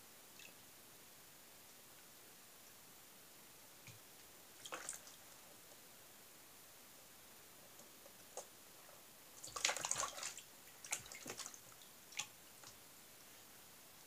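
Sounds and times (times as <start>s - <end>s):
water splashing in plastic tub: 4.6s - 5.2s, 9.4s - 12.8s.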